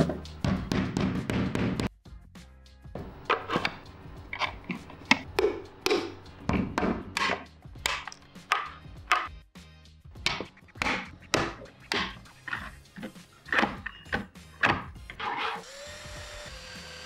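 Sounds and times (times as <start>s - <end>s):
mallet tapping plastic parts: 5.1s - 9.3s.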